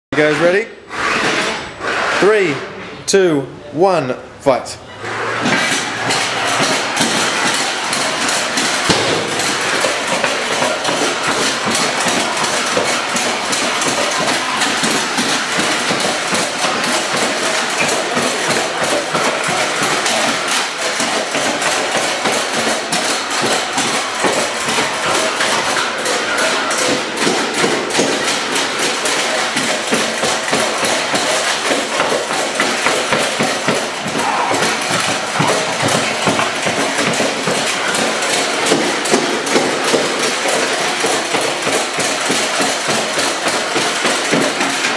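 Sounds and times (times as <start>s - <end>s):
robots clattering impacts: 5.3s - 11.3s.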